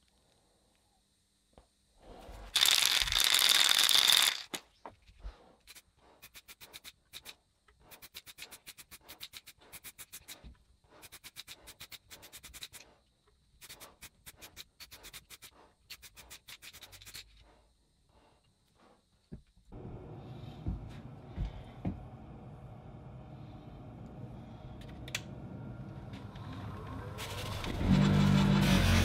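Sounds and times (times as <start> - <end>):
spray paint can hissing: 2.6 - 4.5, 13.6 - 17.2.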